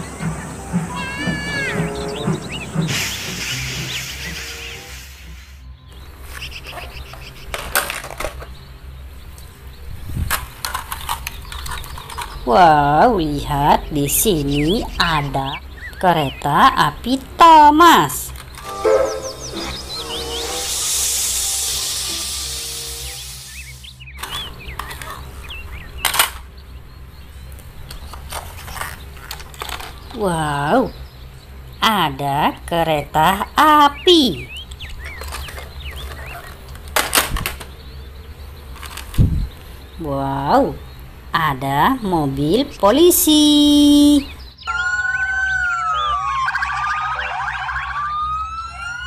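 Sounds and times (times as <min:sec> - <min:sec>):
faint bird chirps: 0:00.0 - 0:07.4, 0:43.9 - 0:47.8
steady low hum: 0:00.0 - 0:44.6
plastic toy trains clicking: 0:07.1 - 0:08.5, 0:10.3 - 0:12.5, 0:18.2 - 0:18.8, 0:26.0 - 0:26.5, 0:27.8 - 0:30.2, 0:34.7 - 0:37.7, 0:38.7 - 0:39.2.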